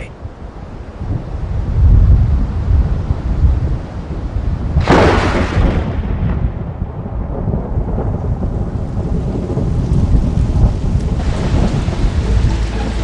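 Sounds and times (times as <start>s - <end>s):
thunder rumble: 0.0s - 13.0s
thunder crack: 1.0s - 13.0s.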